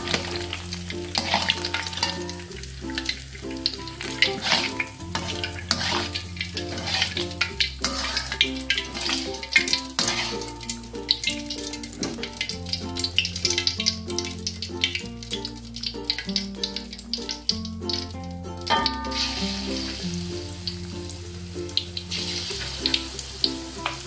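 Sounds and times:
background music with bass: 0.0s - 24.0s
shrimp frying in hot oil: 0.0s - 24.0s.

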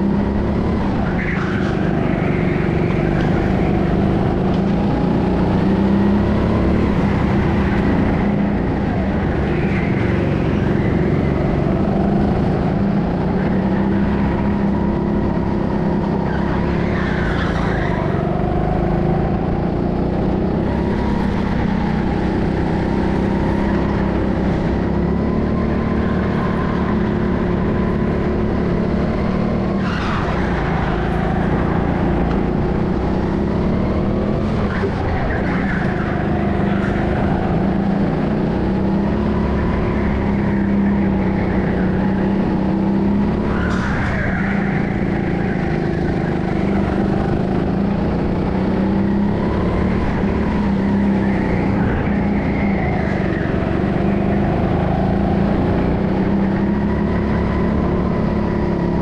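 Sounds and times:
go-kart engine running: 0.0s - 59.0s
tyres squealing: 29.6s - 49.3s.

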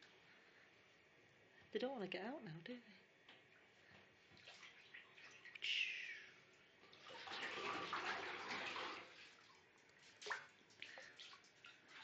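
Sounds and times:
bathwater swishing and splashing: 4.0s - 5.8s, 6.4s - 12.0s.

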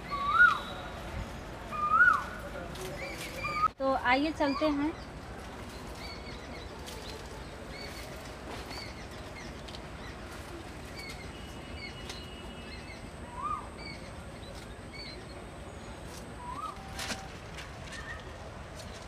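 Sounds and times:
rising and falling bird call: 0.0s - 0.8s, 1.7s - 2.4s, 11.9s - 14.1s, 16.4s - 17.0s
birds chirping: 0.0s - 17.3s.

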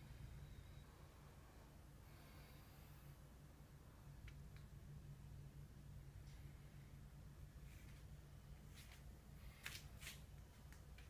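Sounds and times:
faint low hum: 0.0s - 11.0s
soft rustles: 7.6s - 11.0s.

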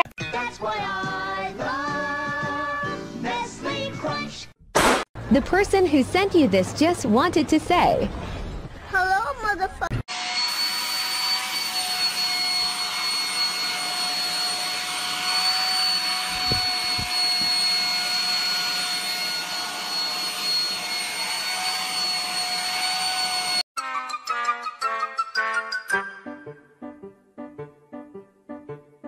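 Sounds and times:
vacuum cleaner running: 10.1s - 23.6s.

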